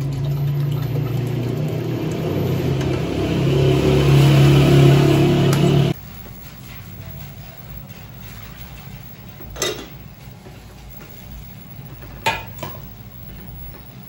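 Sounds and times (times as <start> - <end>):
dishes clinking: 9.4 - 10.0, 12.0 - 13.0.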